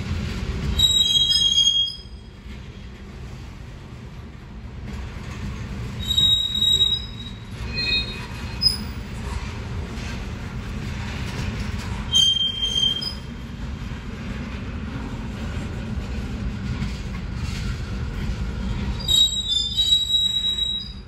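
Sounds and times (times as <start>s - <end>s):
freight train rumbling past: 0.0s - 21.0s
train wheels squealing: 0.6s - 2.5s, 5.9s - 10.1s, 11.4s - 13.4s, 18.8s - 21.0s.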